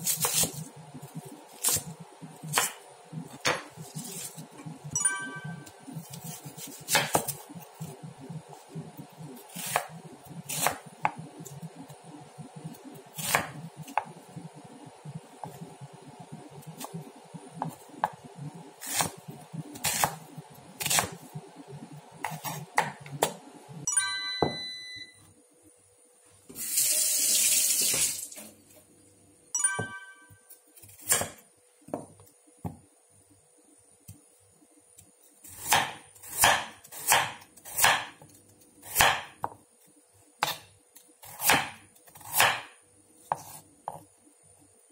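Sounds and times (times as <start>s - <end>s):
knife chopping on wooden board: 2.5s - 3.7s, 6.6s - 7.4s, 13.2s - 14.1s, 18.8s - 19.1s, 19.8s - 20.2s, 22.2s - 23.4s, 35.6s - 38.3s, 38.9s - 39.6s, 40.4s - 42.7s, 43.3s - 44.0s.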